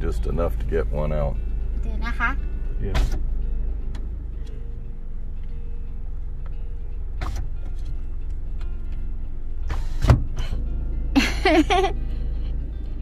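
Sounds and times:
car engine idling: 0.0 - 13.0
sharp thump: 2.8 - 3.3, 7.2 - 7.5, 9.7 - 10.6
rustling against car window: 5.4 - 10.7.

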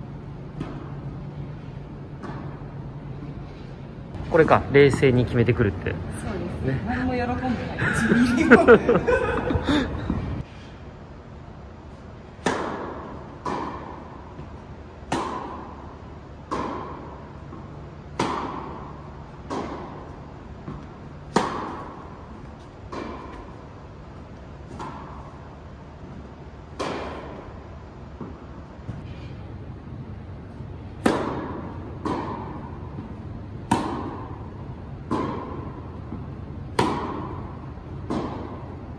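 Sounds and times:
tennis ball struck with rackets: 12.4 - 23.6, 24.6 - 25.6, 26.6 - 27.6, 30.9 - 38.8
tennis ball bouncing on court: 12.4 - 29.0, 30.5 - 38.9.

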